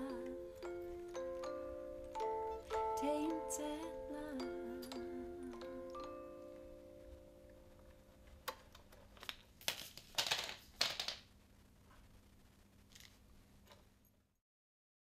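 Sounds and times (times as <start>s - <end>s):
paper rustling: 8.5s - 11.2s.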